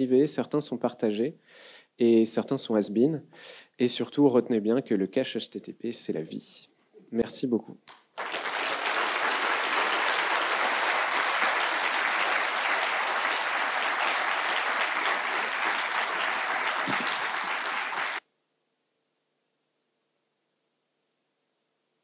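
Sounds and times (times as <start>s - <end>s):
audience applauding: 8.2s - 18.2s.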